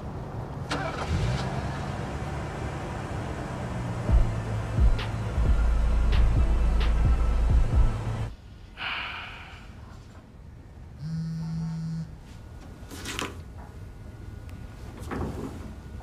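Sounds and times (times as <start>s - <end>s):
low car rumble: 0.0s - 8.3s
heavy breath or sigh: 8.7s - 9.9s.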